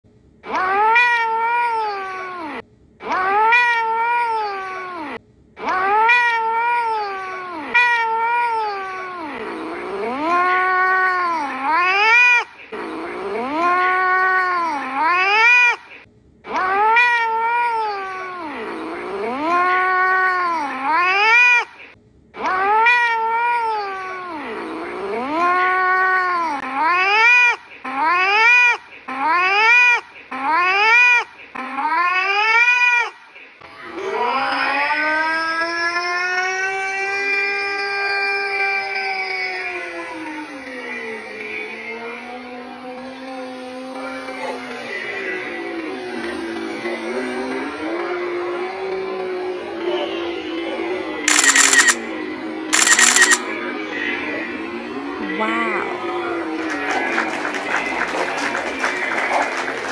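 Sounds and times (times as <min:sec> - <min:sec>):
cat meowing: 0:00.5 - 0:09.2, 0:10.1 - 0:12.5, 0:13.4 - 0:15.8, 0:16.5 - 0:18.3.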